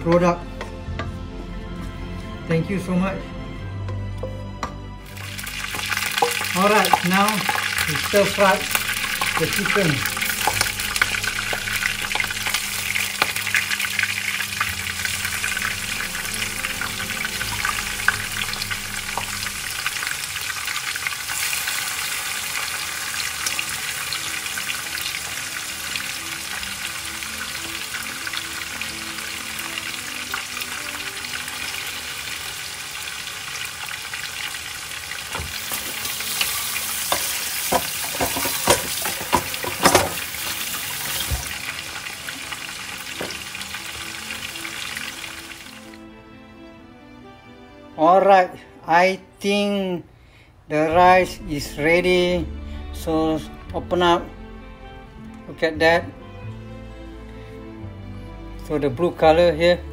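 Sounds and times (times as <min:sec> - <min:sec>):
chicken sizzling in hot oil: 0:05.0 - 0:46.0.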